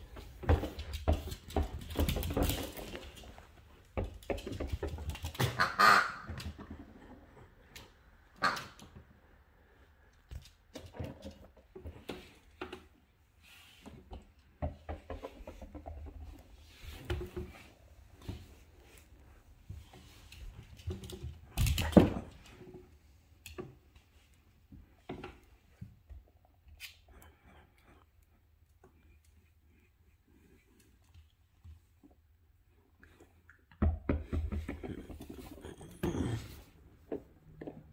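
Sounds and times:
dog claws and toy on floor: 0.0 - 8.0, 10.1 - 13.0, 13.8 - 22.8, 33.7 - 37.9.

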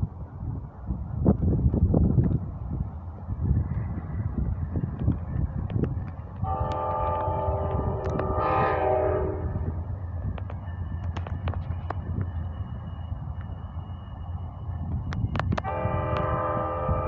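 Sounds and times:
wind on microphone: 0.0 - 17.0
train horn blast: 6.4 - 9.8, 15.6 - 17.0.

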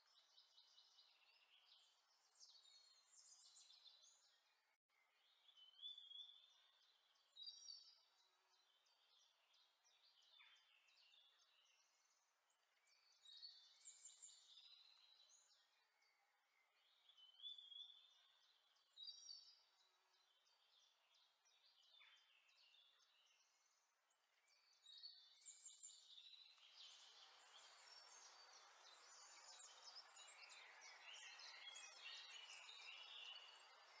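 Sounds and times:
faint bird chirps: 0.0 - 34.0
steady hiss: 26.6 - 34.0.

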